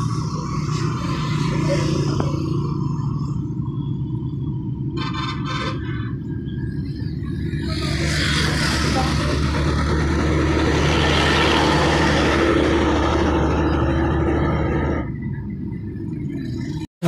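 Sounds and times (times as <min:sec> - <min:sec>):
vehicle engine humming: 0:00.0 - 0:16.9.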